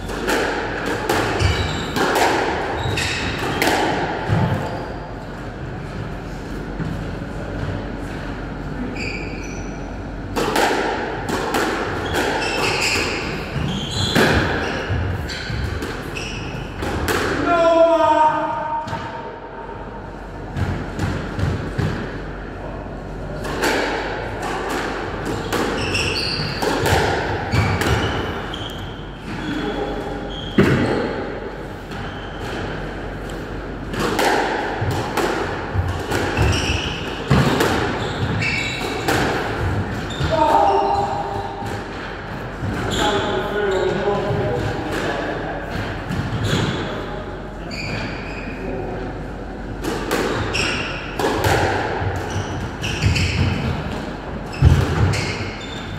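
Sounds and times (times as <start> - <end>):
squash ball hits: 0.0 - 4.8, 10.3 - 17.6, 23.4 - 28.7, 30.5 - 31.2, 33.9 - 43.1, 49.8 - 55.7
shoes squeaking on wooden floor: 12.0 - 16.5, 36.4 - 36.9, 47.7 - 48.6, 52.3 - 53.6.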